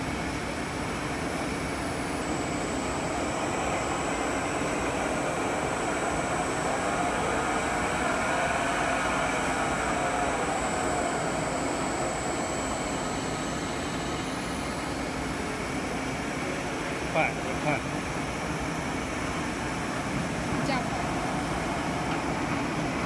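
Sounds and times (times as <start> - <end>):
mixer motor humming: 1.2 - 16.0.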